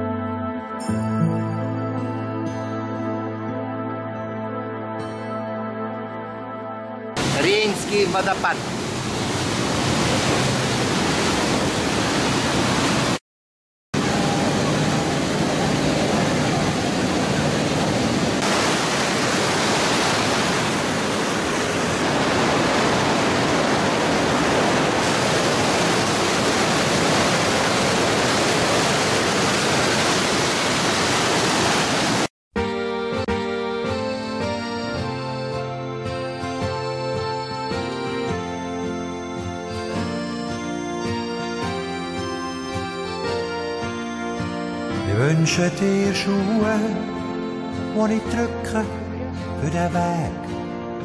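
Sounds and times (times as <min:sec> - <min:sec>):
music: 0:00.0 - 0:08.6, 0:32.6 - 0:51.0
waterfall rushing: 0:07.2 - 0:13.2, 0:14.0 - 0:32.3.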